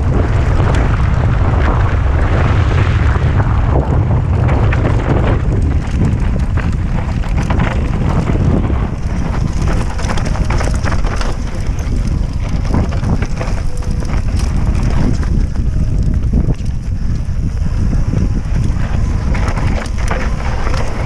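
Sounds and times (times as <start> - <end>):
wind buffeting microphone: 0.0 - 21.0
tyres crunching over stones: 4.4 - 21.0.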